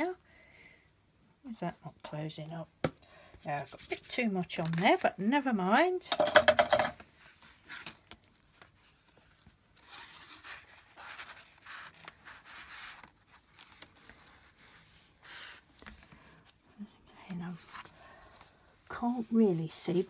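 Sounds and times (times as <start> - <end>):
soft rubbing on paper: 3.4 - 4.4, 8.6 - 20.0
paper rustling and sliding: 7.2 - 16.6.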